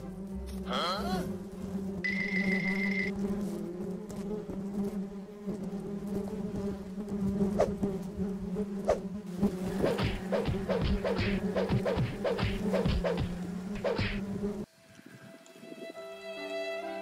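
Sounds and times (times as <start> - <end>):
bees buzzing: 0.0 - 15.9
short repeated pulses: 9.6 - 14.4.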